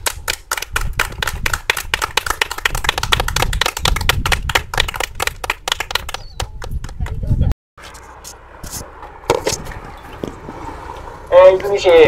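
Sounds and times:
people clapping: 0.0s - 7.5s.

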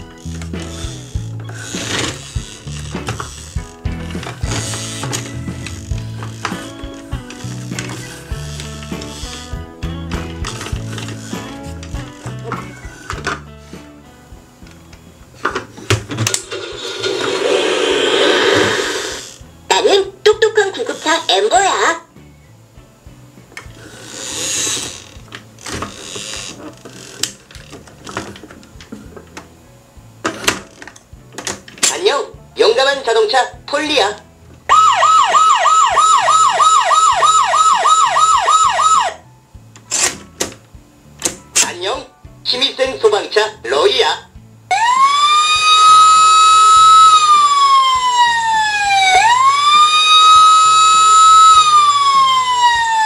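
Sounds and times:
plastic toy scraping: 0.1s - 9.5s, 10.3s - 13.2s, 16.1s - 19.4s, 23.8s - 28.5s
toy electronic siren wailing: 34.7s - 39.2s, 44.7s - 53.0s.

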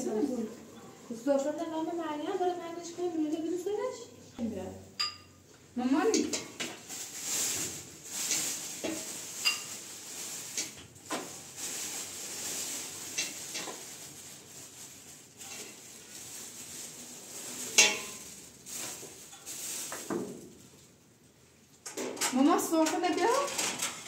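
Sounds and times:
dishes clinking: 5.0s - 5.4s, 8.8s - 9.8s, 17.7s - 18.3s
plastic bags crinkling: 6.2s - 21.0s.

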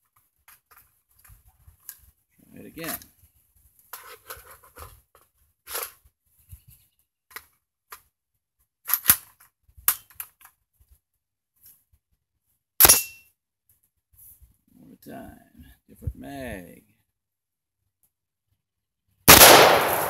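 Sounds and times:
rifle metallic clicks: 19.3s - 20.0s
rifle shot: 19.3s - 20.0s.

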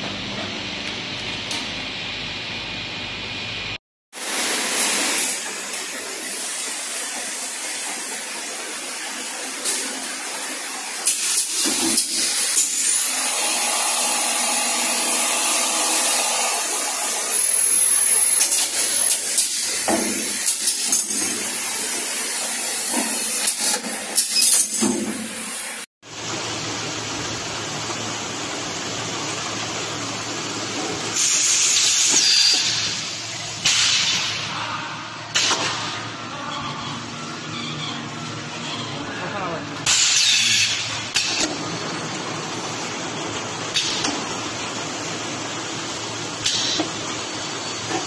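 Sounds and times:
conveyor machine hum: 25.5s - 31.6s, 40.8s - 48.0s.

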